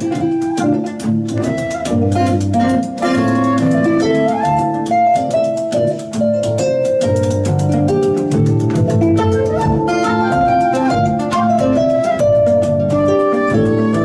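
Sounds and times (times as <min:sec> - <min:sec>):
flute melody: 0:00.0 - 0:06.0, 0:09.0 - 0:14.0
hand percussion beat: 0:00.0 - 0:14.0
plucked strings: 0:00.0 - 0:14.0.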